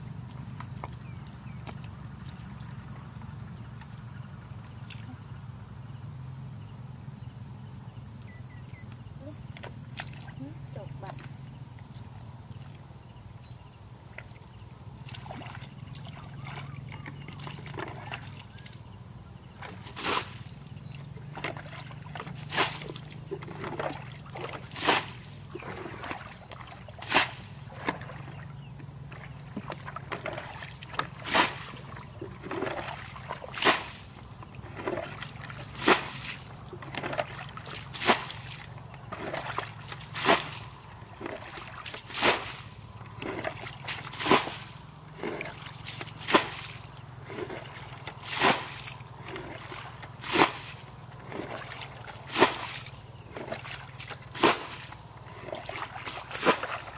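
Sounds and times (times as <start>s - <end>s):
water sloshing in bucket: 0.1s - 5.4s, 8.7s - 56.9s
thrown water splashing: 21.3s - 28.4s, 29.1s - 56.9s.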